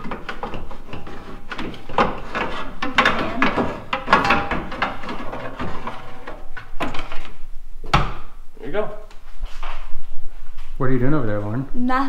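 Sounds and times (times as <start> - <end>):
radiator knocking and scraping: 0.0 - 7.4.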